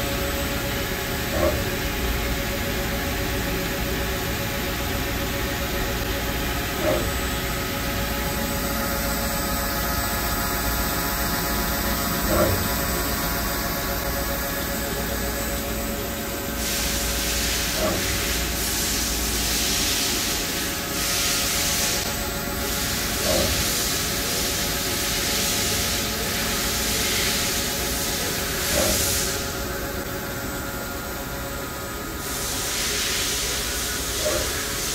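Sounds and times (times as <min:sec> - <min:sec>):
hiss: 0:32.2 - 0:34.9.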